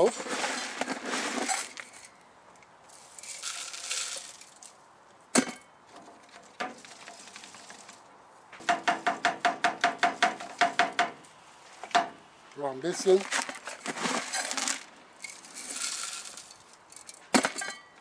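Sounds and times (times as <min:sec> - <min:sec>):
wood chips rustling: 0:00.0 - 0:02.2, 0:02.8 - 0:04.8, 0:05.9 - 0:08.1, 0:12.6 - 0:17.4.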